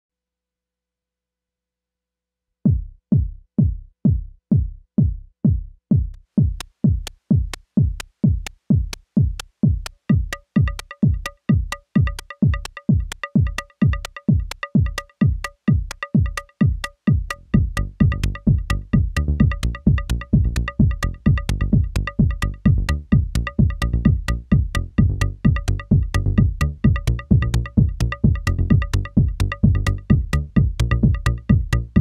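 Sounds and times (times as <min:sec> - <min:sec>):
synthesized kick drum thumping: 0:02.7 - 0:32.0
pitched woodblock sound: 0:09.8 - 0:32.0.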